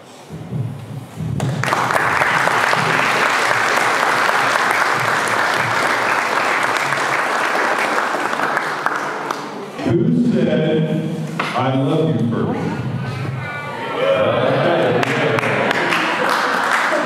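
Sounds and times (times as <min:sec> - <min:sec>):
crowd clapping: 0:01.4 - 0:09.8, 0:14.5 - 0:17.0.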